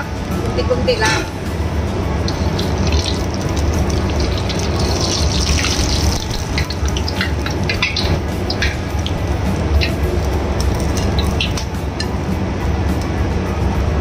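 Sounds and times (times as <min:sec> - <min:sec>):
steady low hum: 0:00.0 - 0:14.0
noodles sizzling in hot oil: 0:02.2 - 0:12.1.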